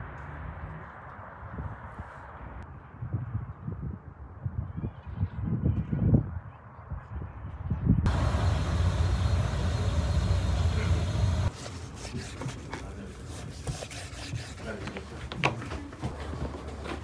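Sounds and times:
steady low rumble: 8.1 - 11.5.

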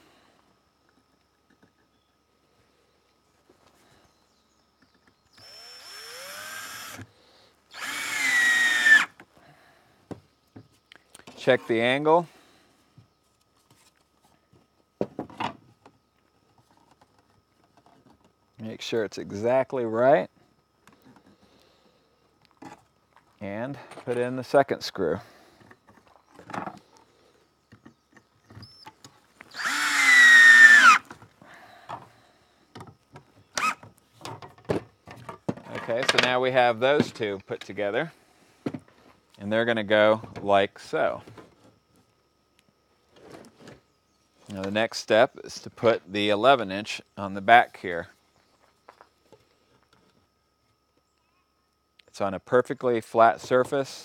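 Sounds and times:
cordless drill driving a screw: 5.4 - 7.1, 7.7 - 9.1, 29.5 - 31.0, 33.6 - 33.8.

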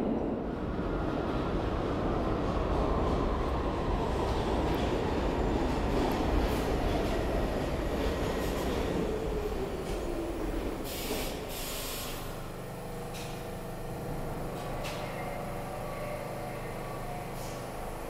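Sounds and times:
steady train hum: 0.0 - 18.0
subway train motor whine: 0.0 - 18.0
air brake hiss: 10.8 - 12.4.

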